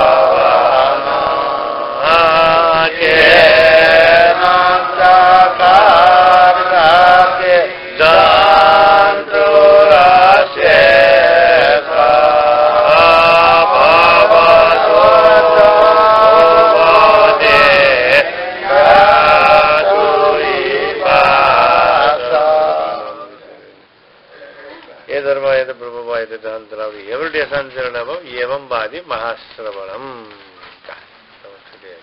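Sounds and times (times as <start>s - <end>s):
devotional chant in long notes: 0.0s - 23.9s.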